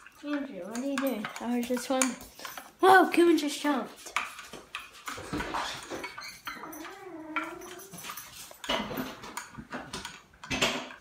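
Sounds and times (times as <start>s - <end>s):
pet whining: 5.2s - 9.3s.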